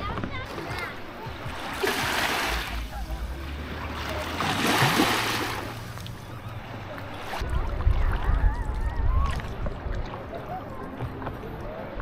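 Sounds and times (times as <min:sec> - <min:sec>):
faint distant voices: 0:00.0 - 0:12.0
lake waves washing ashore: 0:00.5 - 0:08.3.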